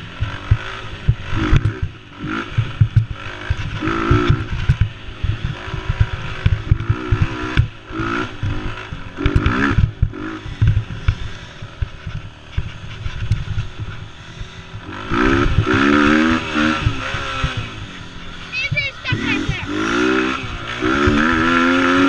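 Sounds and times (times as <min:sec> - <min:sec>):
small quad engine revving: 0:00.0 - 0:22.0
thumps and rattling from bumps: 0:00.2 - 0:07.8, 0:08.4 - 0:17.7.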